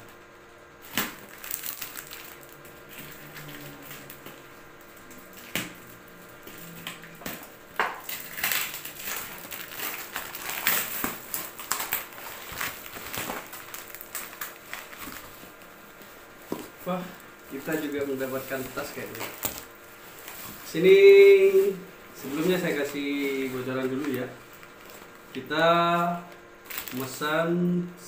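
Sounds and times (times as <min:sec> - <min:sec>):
cardboard crackling and rustling: 0:00.8 - 0:04.2, 0:08.0 - 0:27.1
packing tape ripping: 0:00.8 - 0:04.4, 0:08.0 - 0:15.6, 0:17.6 - 0:20.6, 0:26.6 - 0:27.1.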